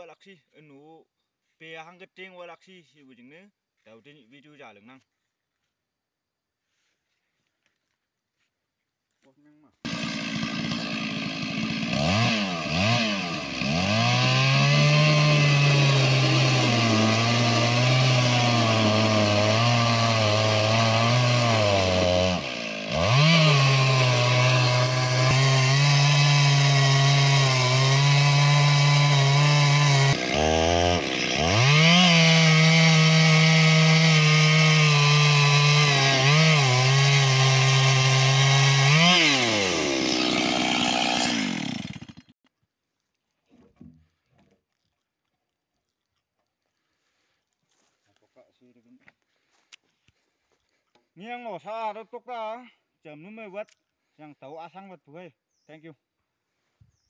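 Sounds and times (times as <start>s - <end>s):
chainsaw ripping through log: 9.8s - 42.4s.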